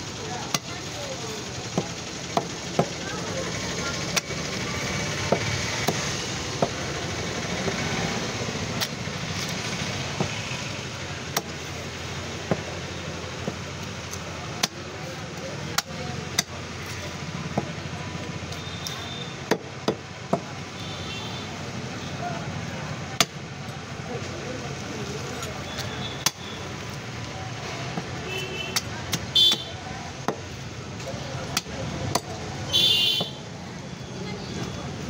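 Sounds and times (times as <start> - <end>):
cleaver chopping: 1.6 - 3.0, 4.1 - 7.0, 7.6 - 10.5, 11.2 - 11.7, 12.3 - 16.7, 19.3 - 20.6, 23.2 - 23.4, 25.4 - 26.8, 27.8 - 32.5.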